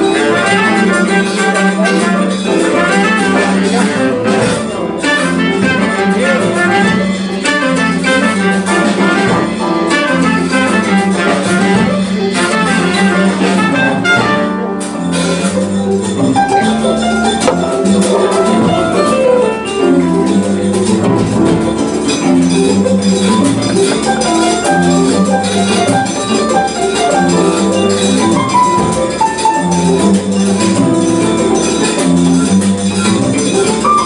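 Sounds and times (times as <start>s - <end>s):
trumpet: 0.0s - 15.6s
guitar: 0.0s - 34.0s
hand drums: 0.0s - 34.0s
piano: 0.0s - 34.0s.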